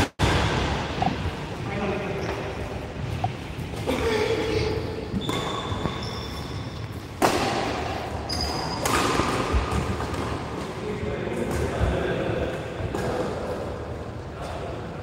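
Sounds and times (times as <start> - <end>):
shoes squeaking on court: 2.2 - 7.2, 8.2 - 9.7
racket hitting shuttlecock: 5.1 - 6.1, 6.9 - 10.8.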